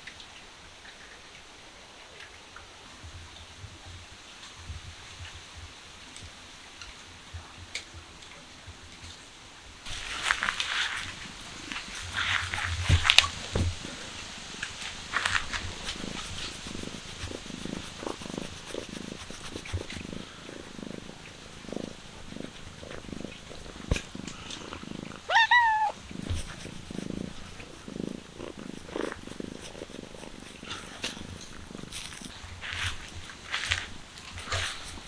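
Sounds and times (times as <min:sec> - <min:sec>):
cat purring: 0:09.9 - 0:35.0
cat meowing: 0:25.2 - 0:26.0.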